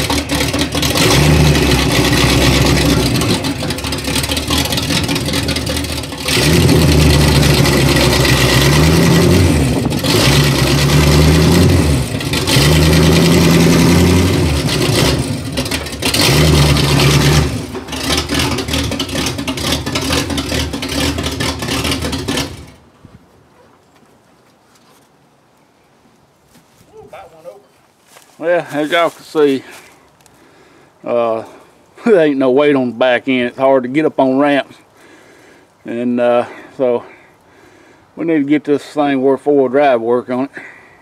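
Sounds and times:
truck engine revving: 0:00.0 - 0:22.9.

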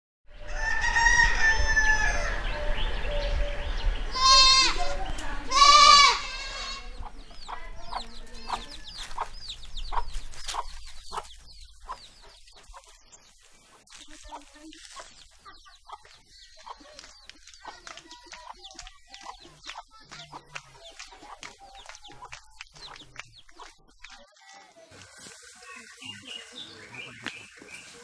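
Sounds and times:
chicken clucking: 0:06.3 - 0:28.0.

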